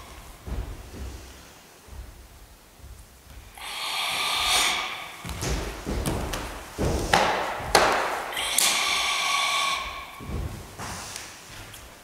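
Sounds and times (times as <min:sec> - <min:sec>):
forced hissing exhalation: 0:03.5 - 0:05.6, 0:08.2 - 0:11.5.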